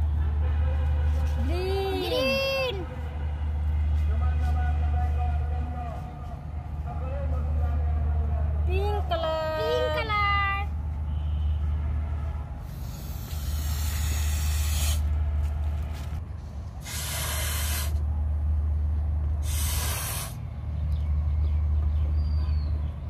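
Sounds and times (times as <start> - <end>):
breathy blows into balloon: 12.6 - 15.1, 16.8 - 18.0, 19.4 - 20.4.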